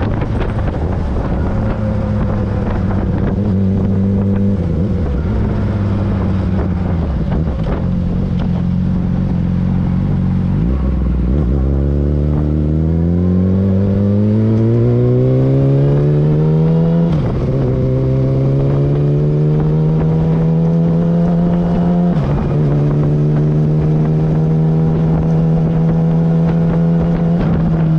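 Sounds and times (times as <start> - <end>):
motorcycle engine revving with upshifts: 0.0 - 27.9.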